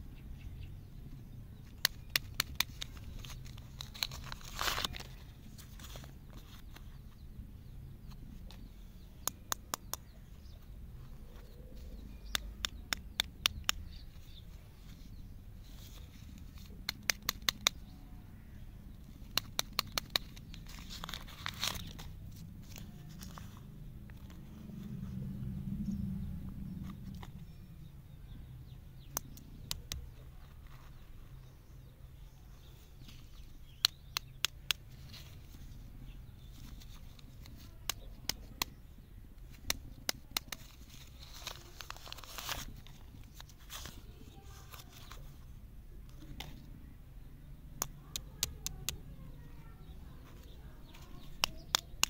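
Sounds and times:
low steady hum: 0.0s - 52.0s
plastic wrappers crinkling: 2.0s - 6.8s, 19.4s - 23.7s, 40.2s - 45.2s.

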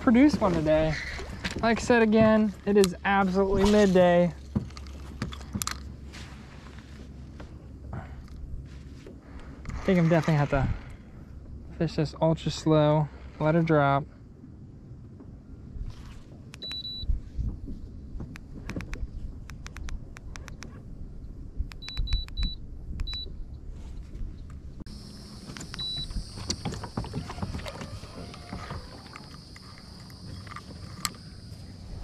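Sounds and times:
fishing rod and reel clicks: 29.0s - 31.2s.

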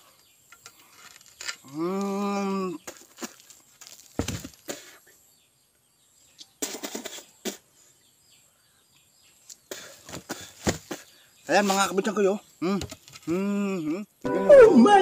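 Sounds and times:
faint birds chirping: 0.0s - 15.0s
pieces crumbling and dropping: 2.8s - 4.7s
concrete block crunching and breaking: 2.8s - 4.8s.

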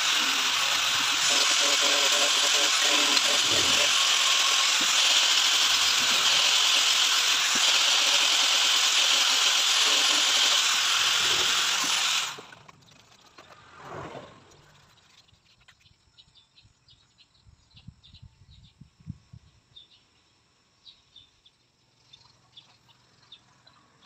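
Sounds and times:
disc sander on wood: 0.0s - 12.5s.

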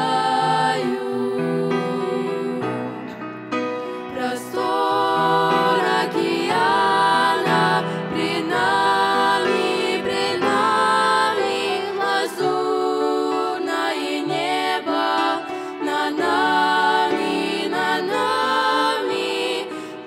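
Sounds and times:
girls singing a hymn in harmony: 0.0s - 3.1s, 4.1s - 20.0s.

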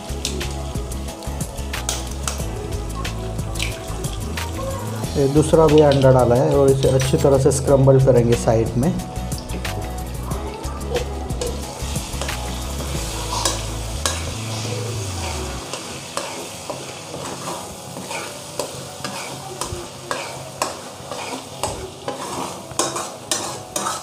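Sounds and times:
eggs sizzling in oil: 0.0s - 24.0s
spatula scraping a pan: 11.0s - 24.0s.

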